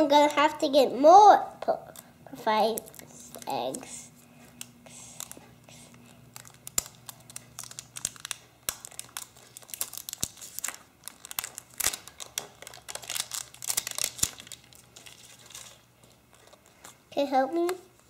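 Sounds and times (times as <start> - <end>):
plastic wrapper crinkling and tearing: 2.7 - 3.9, 4.5 - 17.0.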